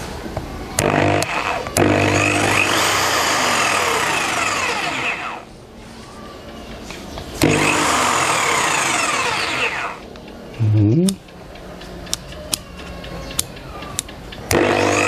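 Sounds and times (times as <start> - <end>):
jigsaw running with no load: 0.8 - 5.4, 7.4 - 10.0, 14.5 - 15.0.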